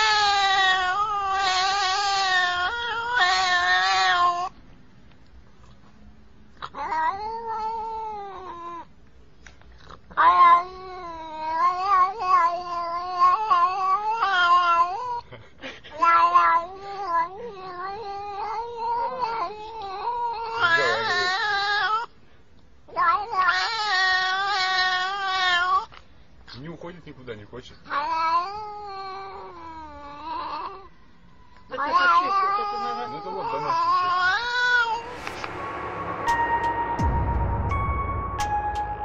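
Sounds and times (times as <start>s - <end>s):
cat yowling: 0.0s - 4.6s, 6.6s - 8.9s, 10.1s - 15.3s, 15.9s - 22.1s, 22.9s - 26.0s, 27.8s - 31.0s, 31.7s - 35.2s.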